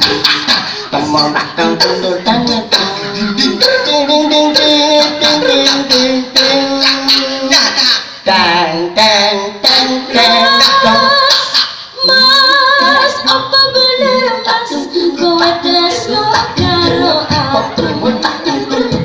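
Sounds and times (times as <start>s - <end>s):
men's voices vocal accompaniment: 0.0s - 11.8s
vocal imitated drum strokes: 0.0s - 19.0s.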